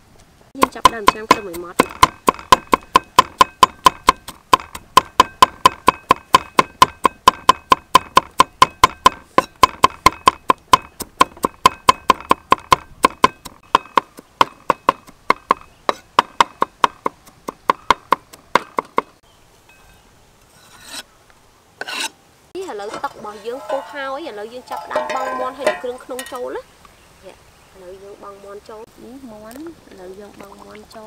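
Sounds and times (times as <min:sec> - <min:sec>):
knife chopping on wooden board: 0:00.6 - 0:19.1.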